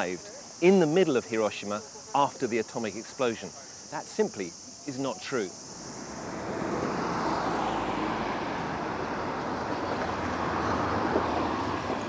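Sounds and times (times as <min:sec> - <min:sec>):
road traffic: 0:00.0 - 0:12.0
tram rolling on track: 0:08.3 - 0:12.0.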